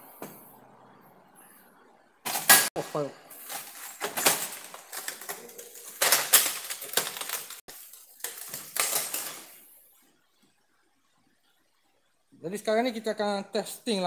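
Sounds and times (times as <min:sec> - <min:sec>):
clattering and rustling: 0:03.4 - 0:09.6.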